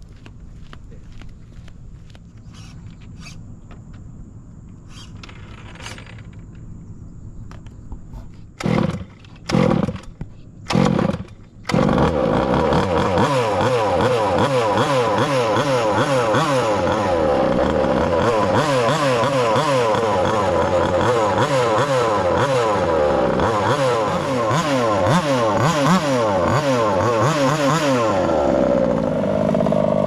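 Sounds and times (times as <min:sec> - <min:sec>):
engine cranking: 0:08.6 - 0:30.0
small two-stroke engine running: 0:08.6 - 0:30.0.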